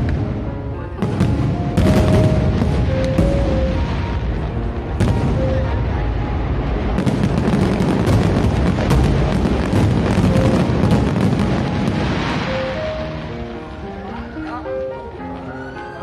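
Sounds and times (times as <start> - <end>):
fireworks booming and crackling: 0.0 - 15.4
sharp firework bangs: 1.0 - 6.1, 6.8 - 13.2.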